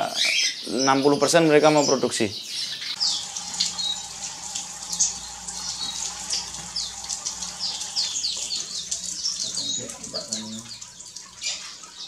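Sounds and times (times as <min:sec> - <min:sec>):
finches chirping: 0:00.0 - 0:12.0.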